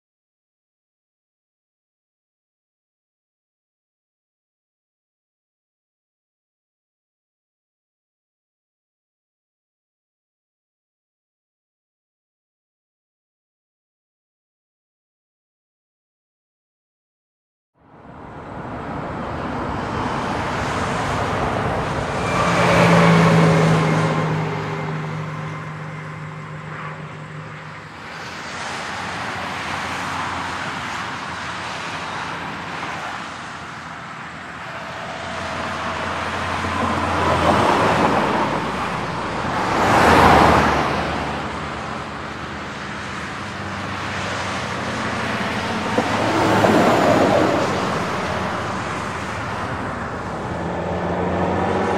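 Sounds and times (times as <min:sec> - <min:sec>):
motorway traffic rush: 0:17.8 - 0:51.9
vehicles passing close by: 0:17.8 - 0:51.9.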